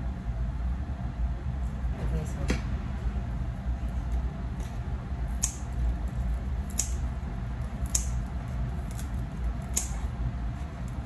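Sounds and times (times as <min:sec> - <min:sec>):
steady low hum: 0:00.0 - 0:11.0
scissors snipping onion leaves: 0:04.1 - 0:11.0.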